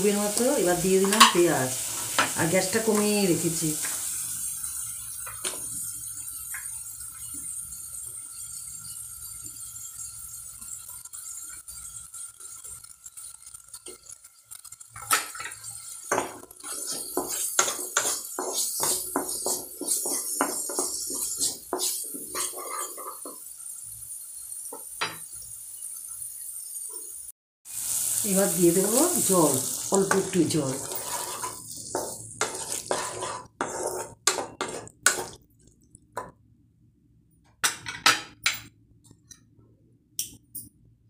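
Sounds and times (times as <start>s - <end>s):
onions sizzling: 0.0s - 36.3s
wooden spatula scraping pan: 16.1s - 23.4s, 30.1s - 35.4s.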